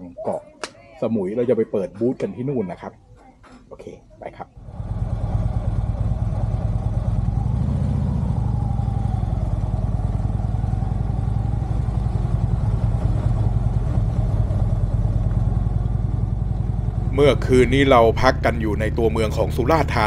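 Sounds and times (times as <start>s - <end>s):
motorcycle engine running: 4.6s - 20.0s.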